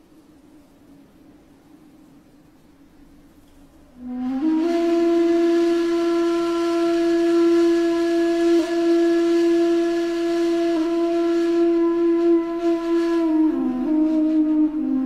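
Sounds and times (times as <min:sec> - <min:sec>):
flute holding a long note: 0:03.9 - 0:15.0.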